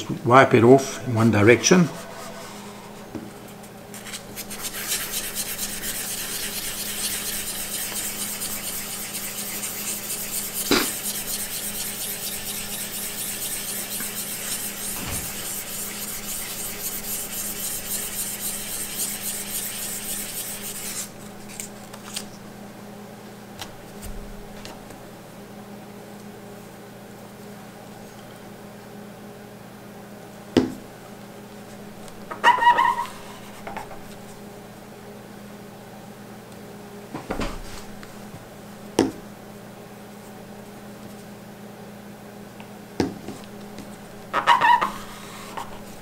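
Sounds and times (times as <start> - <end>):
pad rubbing on metal beam: 0.6 - 21.1.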